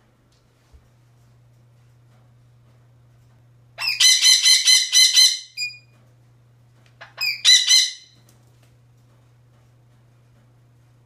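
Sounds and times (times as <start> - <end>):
parrot squawking: 3.8 - 5.8, 7.0 - 8.2.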